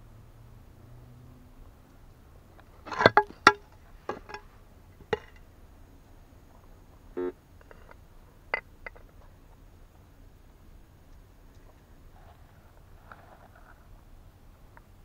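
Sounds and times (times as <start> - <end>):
short buzzy tone: 7.2 - 7.4.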